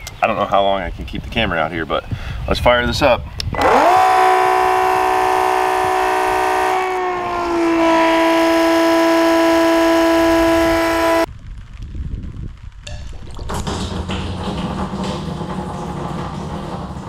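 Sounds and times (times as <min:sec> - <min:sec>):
electric water pump whining: 0:03.5 - 0:11.3, 0:13.6 - 0:17.0.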